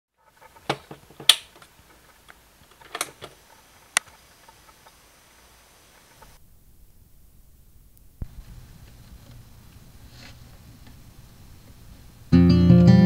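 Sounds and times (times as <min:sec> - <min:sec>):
faint steady hiss: 0:00.1 - 0:13.0
cassette recorder control clicks: 0:02.7 - 0:03.4.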